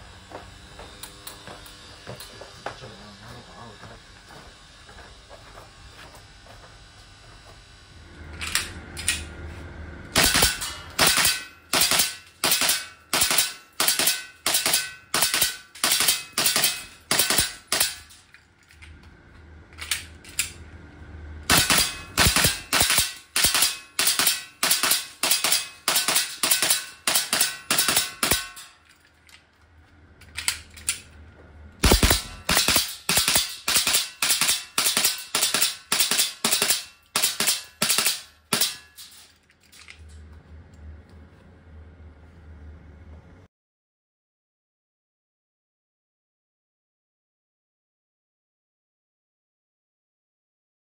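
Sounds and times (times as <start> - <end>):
airsoft pistol shots: 10.2 - 18.1, 21.5 - 28.6, 31.8 - 38.9
magazine change clicks: 30.2 - 31.1, 31.8 - 38.2.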